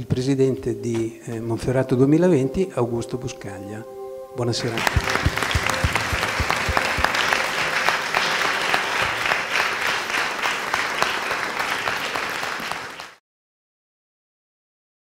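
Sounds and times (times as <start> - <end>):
audience applauding: 4.6 - 13.2.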